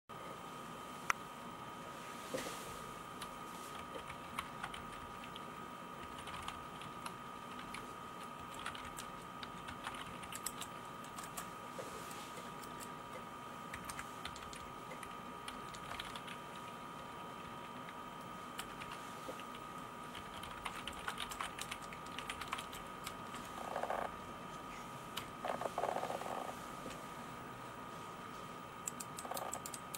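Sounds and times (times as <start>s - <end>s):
keyboard typing clicks: 8.4s - 11.4s, 20.1s - 23.2s, 28.8s - 29.9s.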